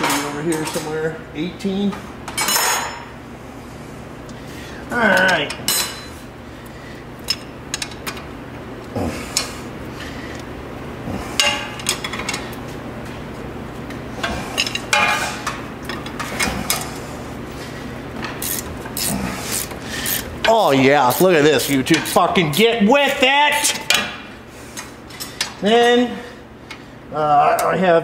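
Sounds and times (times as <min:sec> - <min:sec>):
low steady shop hum: 0:00.0 - 0:28.0
ratcheting wrench clicking: 0:18.4 - 0:20.3.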